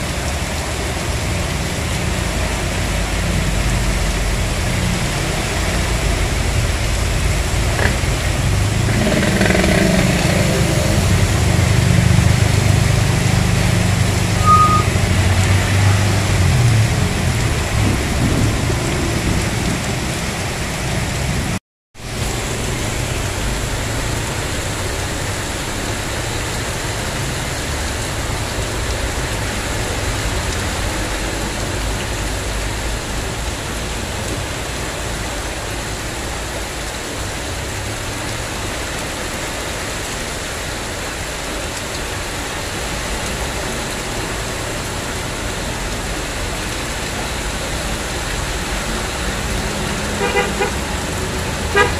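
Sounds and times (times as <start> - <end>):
heavy rain hissing: 0.0 - 51.9
vehicles driving through water: 0.0 - 51.9
short beep: 14.4 - 15.0.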